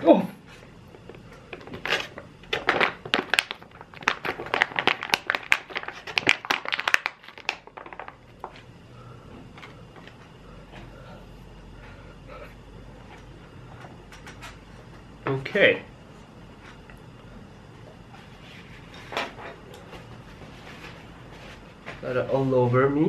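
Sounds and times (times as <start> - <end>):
plastic pouch crinkling: 1.7 - 8.5.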